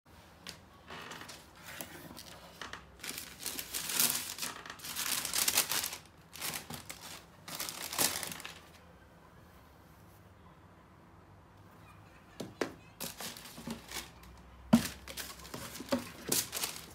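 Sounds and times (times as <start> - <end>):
tissue paper crinkling: 3.0 - 8.8, 13.0 - 16.9.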